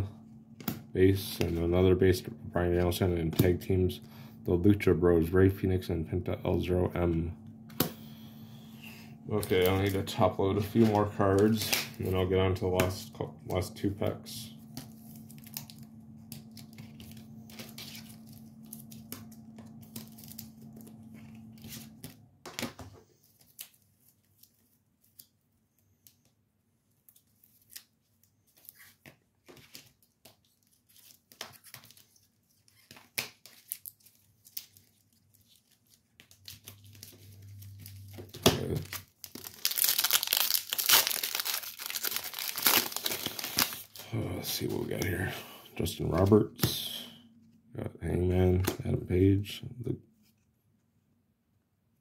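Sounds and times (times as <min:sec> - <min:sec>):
trading cards clicking and rustling: 0:09.3 - 0:26.3, 0:27.1 - 0:45.3
wrapper crinkling and tearing: 0:14.6 - 0:22.2, 0:29.6 - 0:45.0.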